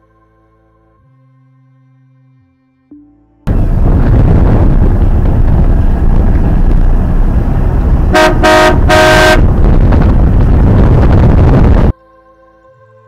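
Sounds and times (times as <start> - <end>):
wind buffeting microphone: 3.5 - 11.9
boat horn blasts: 8.1 - 9.6.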